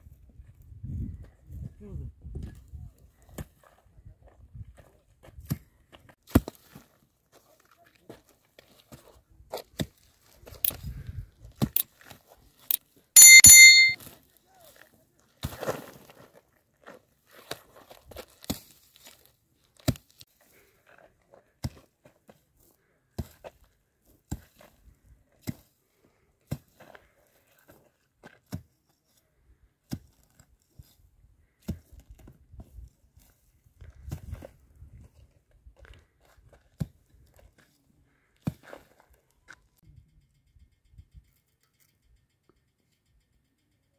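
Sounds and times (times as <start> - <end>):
mattock striking stony ground: 6.3 - 6.8
brittle brush and soil crunching: 14.2 - 20.7.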